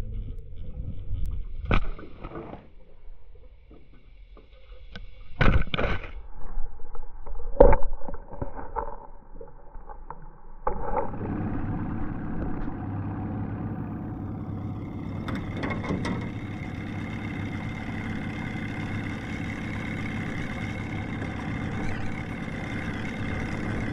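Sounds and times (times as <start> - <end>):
outboard motor running: 10.6 - 23.9.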